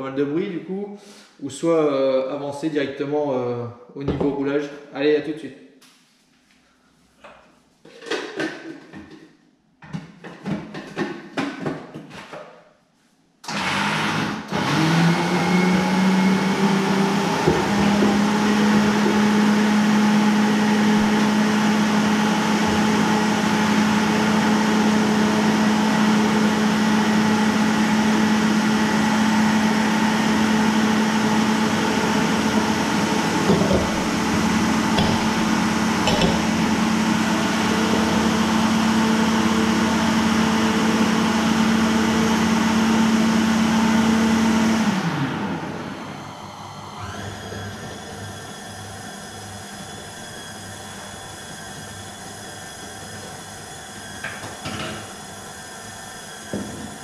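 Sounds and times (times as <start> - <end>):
stand mixer motor humming: 13.5 - 57.0.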